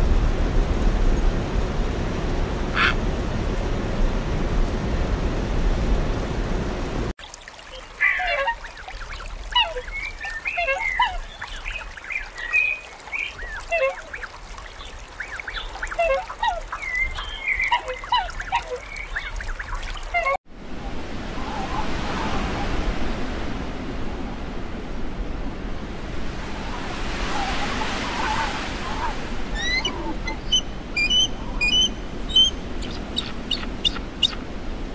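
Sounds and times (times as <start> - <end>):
geese honking and cackling: 2.8 - 3.0, 8.0 - 20.4, 27.2 - 34.4.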